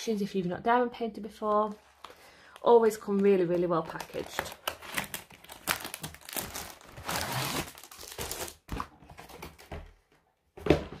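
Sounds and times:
cardboard and plastic rustling: 0:01.4 - 0:11.0.

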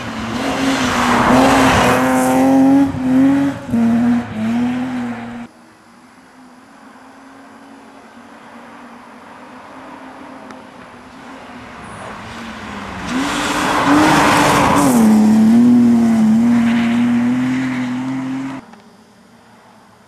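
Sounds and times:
rally car engine accelerating: 0:00.0 - 0:05.5, 0:12.3 - 0:18.6
rush of tyres on snow: 0:00.0 - 0:05.5, 0:08.1 - 0:18.6.

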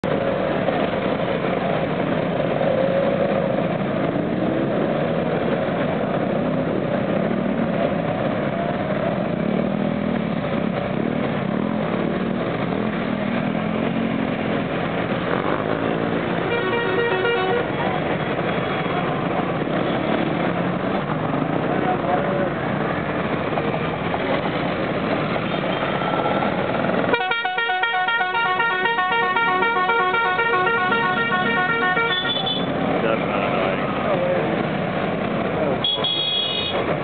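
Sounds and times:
scooter engines revving: 0:00.1 - 0:27.1, 0:30.6 - 0:37.0
horn toot: 0:27.1 - 0:32.8.

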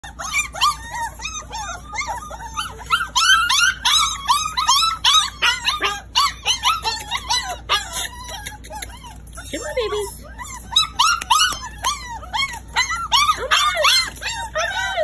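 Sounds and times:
puppies whining and yipping: 0:00.0 - 0:15.0.

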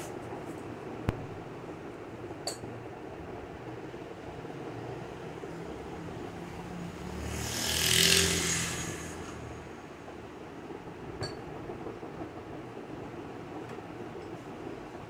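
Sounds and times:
road vehicle passing by: 0:04.9 - 0:10.4.

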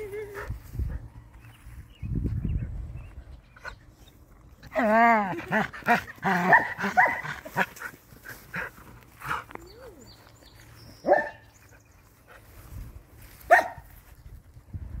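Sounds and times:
dog barking: 0:06.4 - 0:07.3, 0:11.0 - 0:11.4, 0:13.5 - 0:13.9.

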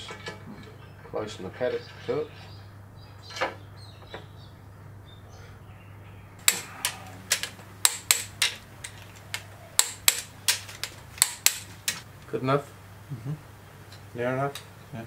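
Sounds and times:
ratchet clicking: 0:06.4 - 0:12.0.

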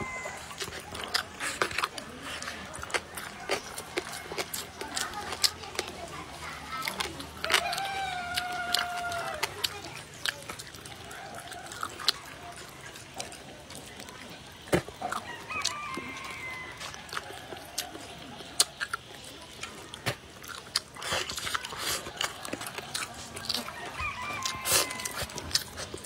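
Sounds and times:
rooster crowing: 0:00.0 - 0:00.8, 0:07.4 - 0:09.5, 0:15.1 - 0:17.9, 0:22.2 - 0:25.6
person chewing: 0:00.0 - 0:26.0.

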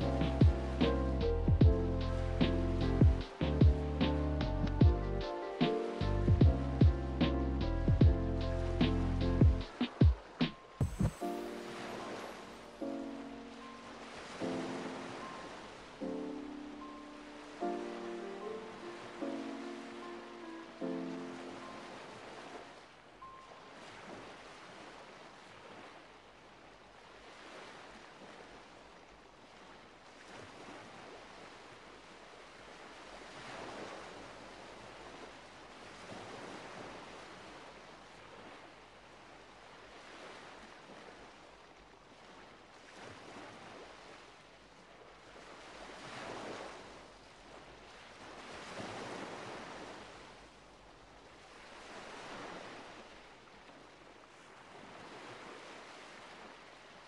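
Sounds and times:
faint rushing noise: 0:09.8 - 0:16.0.

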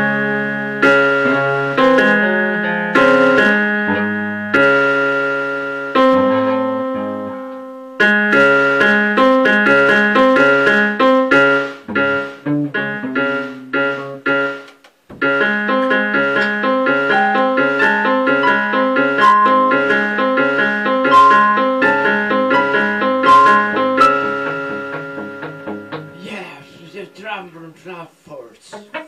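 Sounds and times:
keyboard repeated notes: 0:00.0 - 0:27.5
live band music: 0:11.4 - 0:14.2, 0:21.2 - 0:27.2.

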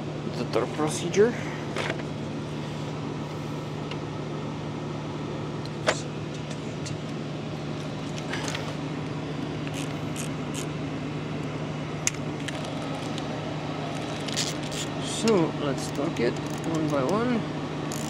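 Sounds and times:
low machinery hum: 0:00.0 - 0:18.0
torque wrench clicks: 0:16.4 - 0:17.2.

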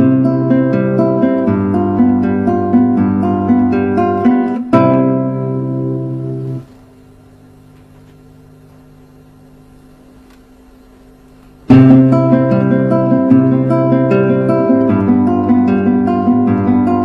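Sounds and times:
nylon-string guitar playing: 0:00.0 - 0:06.7, 0:11.6 - 0:17.0
faint hiss: 0:05.6 - 0:07.1.

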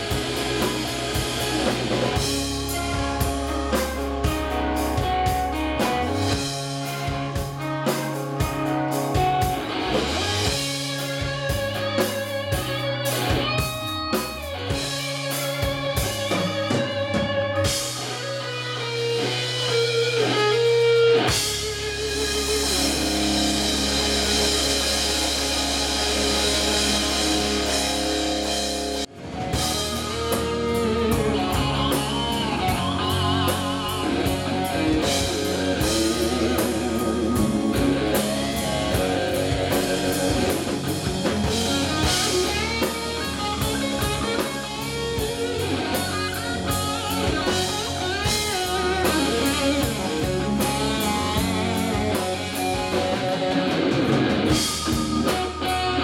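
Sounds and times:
drums: 0:00.0 - 0:56.0
electric guitars: 0:00.0 - 0:56.0
rock band playing live: 0:00.0 - 0:56.0.

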